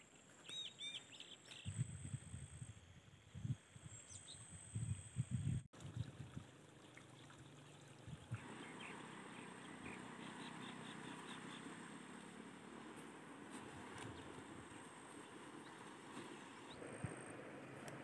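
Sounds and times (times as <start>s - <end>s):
wind rumble on microphone: 1.5s - 6.6s, 7.9s - 8.7s, 13.6s - 18.0s
trickling water: 5.7s - 12.8s.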